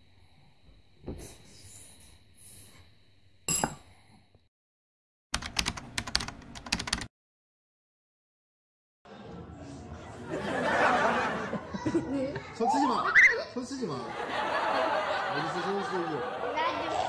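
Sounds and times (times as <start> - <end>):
spoon clinking ceramic bowl: 3.5 - 3.9.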